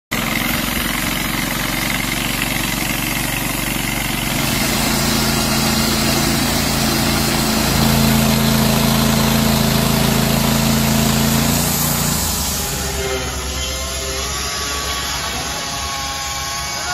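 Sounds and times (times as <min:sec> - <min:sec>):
sawmill motor drone: 0:00.1 - 0:16.9
saw blade hissing through wood: 0:04.0 - 0:16.0.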